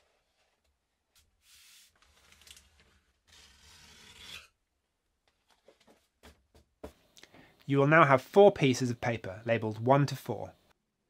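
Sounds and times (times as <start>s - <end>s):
paper rubbing and swishing: 1.2s - 4.5s.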